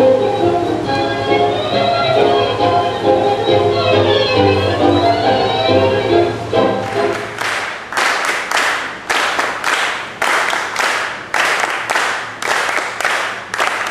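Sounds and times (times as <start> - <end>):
tango music: 0.0 - 7.6
audience applauding: 6.8 - 13.9.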